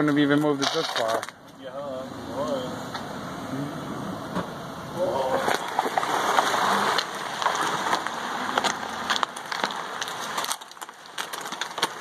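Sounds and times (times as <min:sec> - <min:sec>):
trash can scraping on asphalt: 0:00.0 - 0:01.4, 0:05.2 - 0:12.0.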